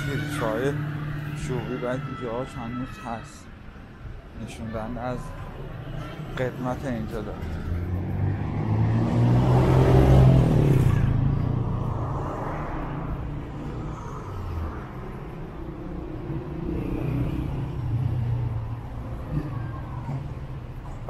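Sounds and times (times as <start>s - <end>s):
traffic rumble: 0.0s - 21.0s
vehicle passing by: 5.2s - 21.0s.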